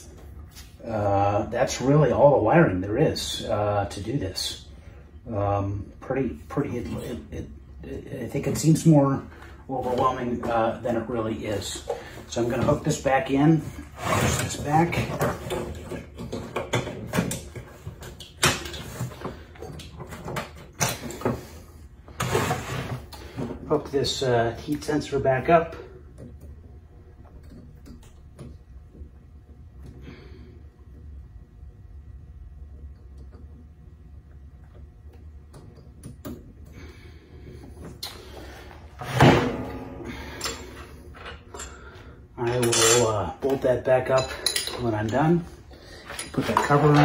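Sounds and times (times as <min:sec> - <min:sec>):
loud metallic clank: 0:39.0 - 0:40.6.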